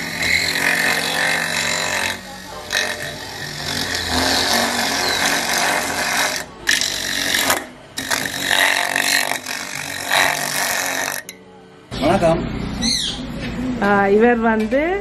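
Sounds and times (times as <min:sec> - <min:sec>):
motor humming: 0:00.0 - 0:11.3
coconut scraper grinding: 0:00.0 - 0:11.4.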